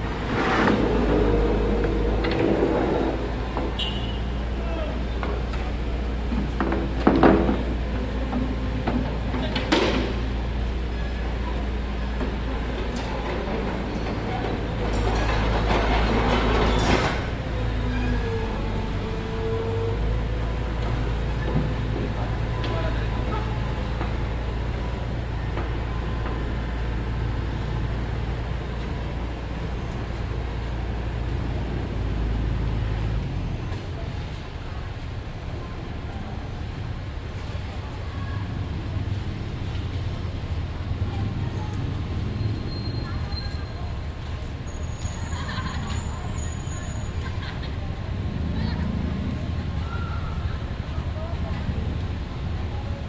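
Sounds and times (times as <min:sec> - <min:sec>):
excavator diesel engine droning: 0:00.0 - 0:06.3, 0:10.2 - 0:29.4.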